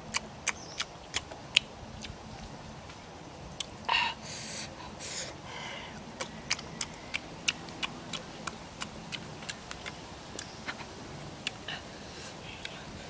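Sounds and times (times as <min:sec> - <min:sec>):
mouth chewing with wet smacks: 0:00.0 - 0:02.2, 0:05.9 - 0:11.8, 0:12.5 - 0:12.9.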